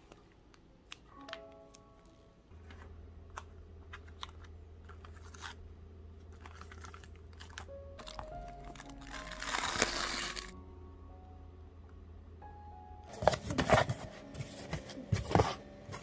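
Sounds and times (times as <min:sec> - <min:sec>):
soft background music: 0:00.0 - 0:16.0
cellophane crinkling: 0:02.6 - 0:05.6, 0:06.2 - 0:10.6.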